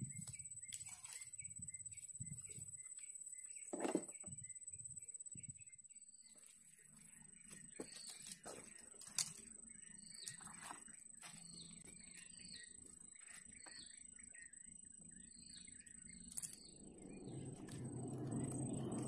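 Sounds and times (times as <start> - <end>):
rustling through plants: 0.0 - 2.5, 6.3 - 13.9
small birds chirping: 0.0 - 19.0
steady high-pitched whine: 0.0 - 19.0.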